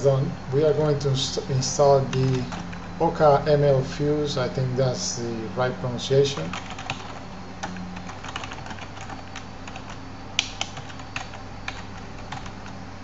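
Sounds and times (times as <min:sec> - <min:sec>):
keyboard typing: 0:06.4 - 0:12.8.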